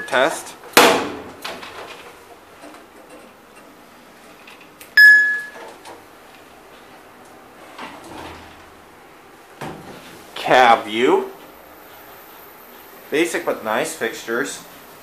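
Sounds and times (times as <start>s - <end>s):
elevator electronic beep: 5.0s - 5.6s
elevator doors sliding shut: 7.5s - 9.0s.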